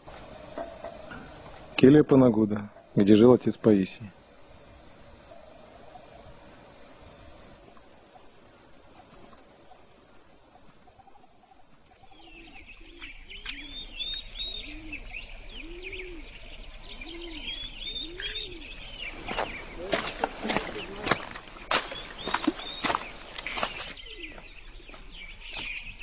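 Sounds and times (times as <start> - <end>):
dove cooing: 0.0 - 1.8, 4.0 - 21.3, 24.0 - 24.5
insects buzzing: 0.0 - 26.0
small songbird chirping: 0.0 - 26.0.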